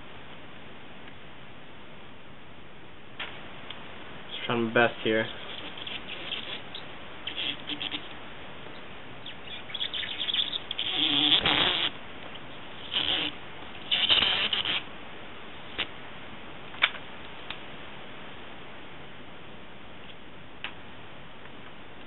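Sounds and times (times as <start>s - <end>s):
card squeaking over plastic film: 5.2s - 8.1s, 9.2s - 12.0s, 12.8s - 14.9s.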